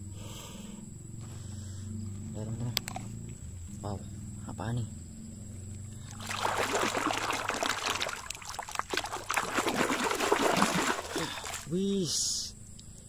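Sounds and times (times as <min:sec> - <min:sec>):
water splashing: 0:06.0 - 0:12.0.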